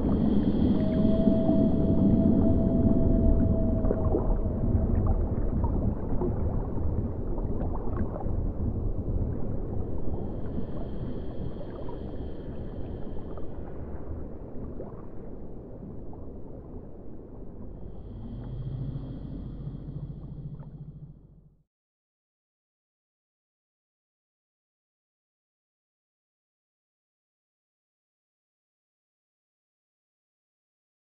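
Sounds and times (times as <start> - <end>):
low rumbling drone: 0.0 - 21.7.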